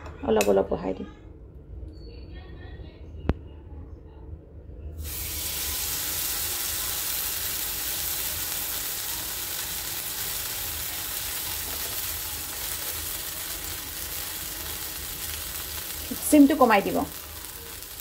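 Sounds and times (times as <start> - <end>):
batter sizzling in hot oil: 5.0 - 18.0.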